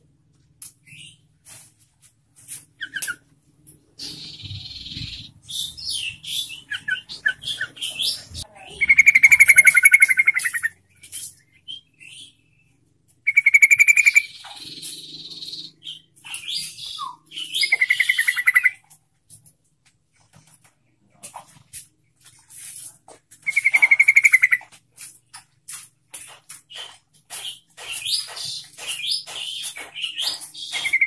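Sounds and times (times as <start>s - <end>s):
bird rattling trills: 8.9s - 11.4s, 23.4s - 25.1s
bird chirps and whistles: 13.3s - 18.8s.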